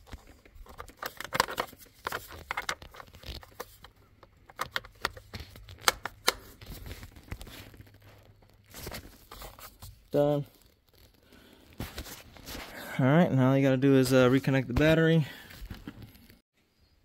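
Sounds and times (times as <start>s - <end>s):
glove rustling: 0.0s - 13.0s
plastic clicks: 0.1s - 6.5s.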